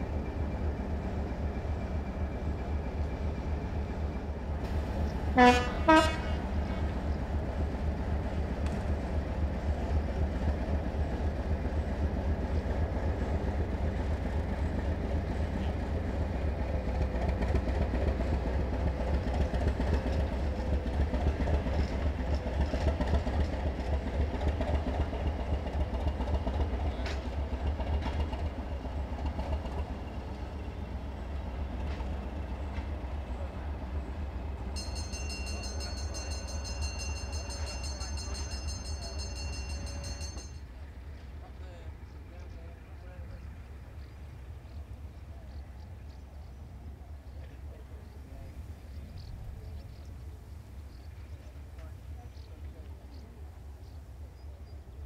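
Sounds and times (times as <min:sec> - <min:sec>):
train wheels clicking on rail joints: 0:06.5 - 0:33.2, 0:34.5 - 0:41.4.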